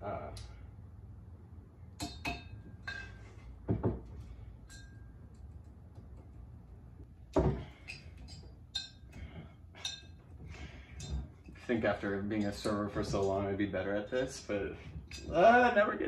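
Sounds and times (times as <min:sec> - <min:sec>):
glass clinks: 0:04.6 - 0:05.2.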